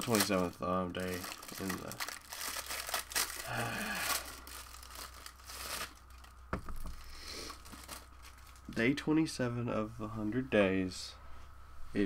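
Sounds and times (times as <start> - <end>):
crinkling rustling: 0.0 - 9.0.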